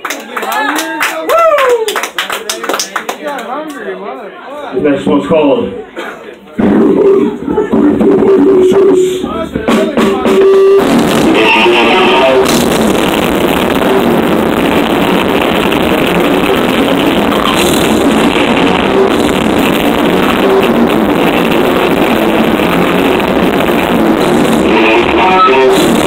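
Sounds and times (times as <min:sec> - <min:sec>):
drums: 0:06.0 - 0:26.0
distorted electric guitar: 0:06.6 - 0:26.0.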